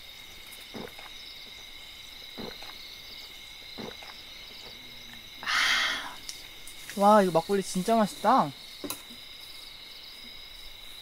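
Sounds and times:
insects chirring: 0.0 - 11.0
soft gulps swallowing: 0.7 - 1.2, 2.3 - 2.8, 3.8 - 4.8.

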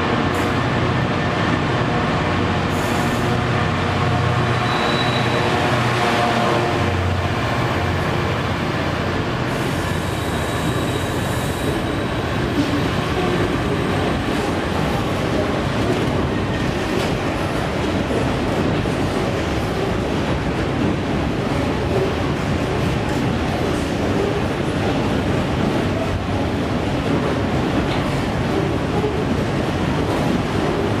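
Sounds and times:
diesel locomotive engine: 0.0 - 31.0
train wheels rumbling on rails: 0.0 - 31.0.

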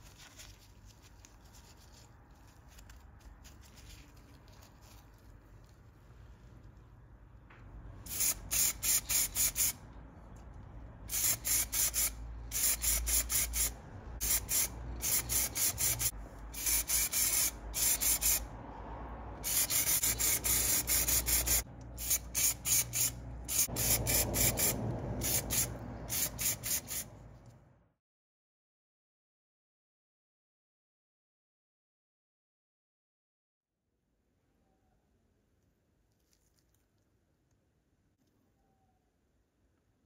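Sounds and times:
spray paint hissing: 8.0 - 9.8, 11.0 - 18.5, 19.4 - 27.1.

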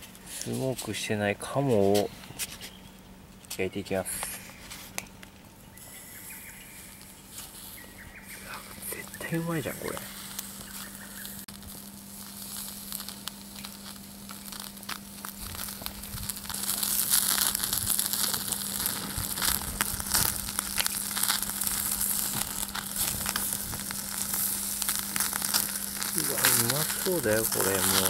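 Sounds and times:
meat sizzling on a grill: 5.7 - 28.0.

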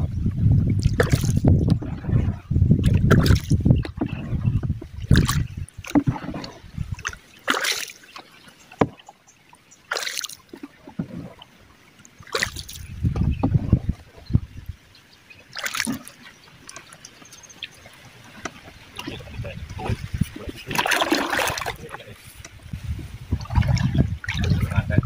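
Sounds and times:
dull low rumbles: 0.0 - 5.8, 12.8 - 14.8
paddle splashing in water: 0.0 - 25.0.

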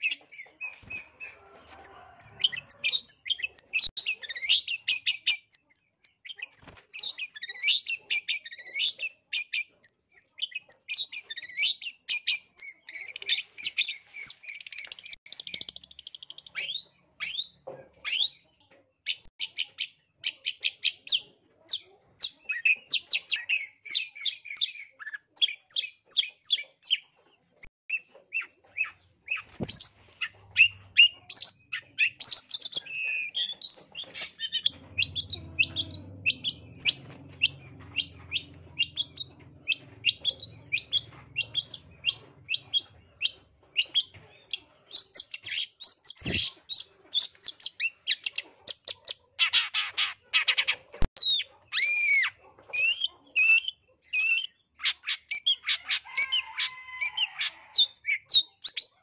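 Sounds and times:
shrike singing scratchy chatter: 28.4 - 44.1.

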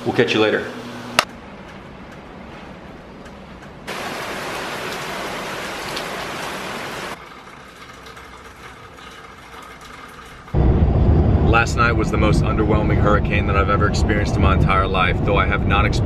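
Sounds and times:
heavy rain hissing: 3.9 - 7.2
car rumbling on road: 10.6 - 16.0.

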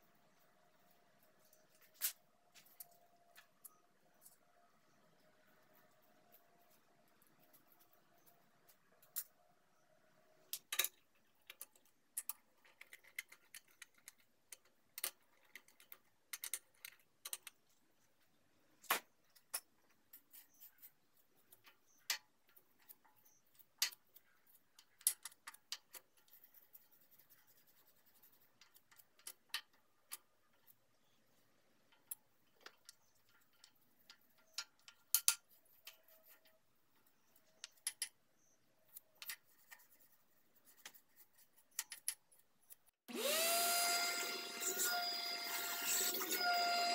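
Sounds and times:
clicks and taps handling parts: 31.8 - 39.8, 41.6 - 42.9.

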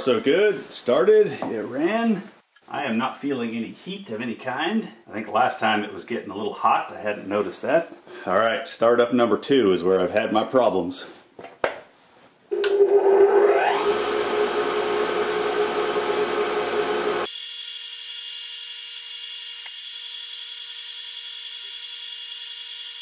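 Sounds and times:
electric motor whine and hum: 12.5 - 23.0.

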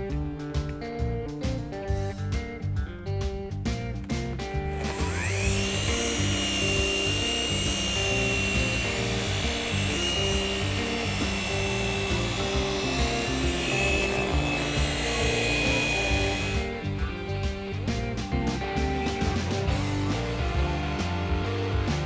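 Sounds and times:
background music: 0.0 - 22.0
electric polisher whining: 4.7 - 20.6.

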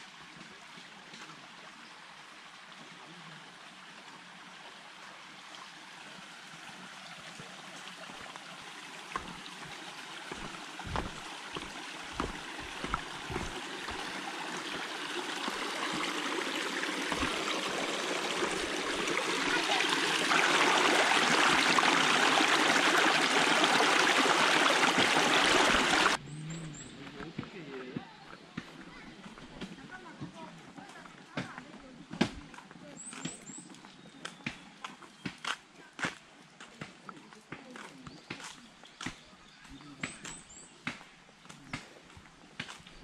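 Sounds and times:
running water rushing: 0.0 - 26.2.

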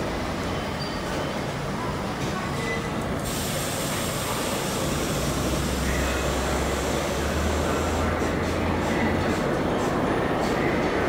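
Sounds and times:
subway train wheels rumbling on rail: 0.0 - 11.0.

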